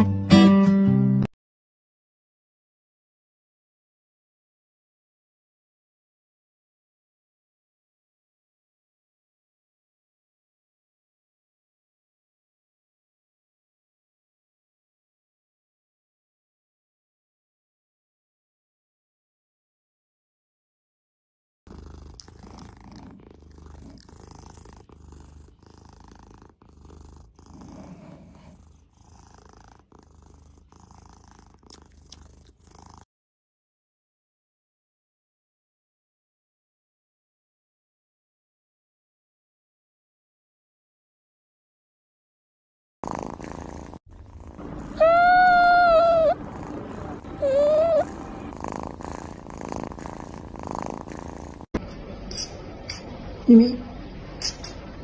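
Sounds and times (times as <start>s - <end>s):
cat purring: 21.7s - 33.1s, 43.0s - 55.0s
cat meowing: 44.8s - 46.4s, 47.1s - 48.2s.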